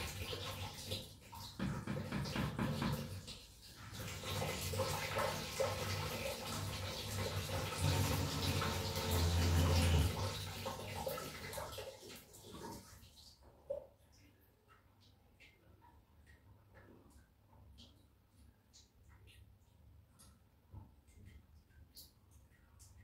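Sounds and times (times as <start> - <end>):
water running and splashing: 0.0 - 16.8.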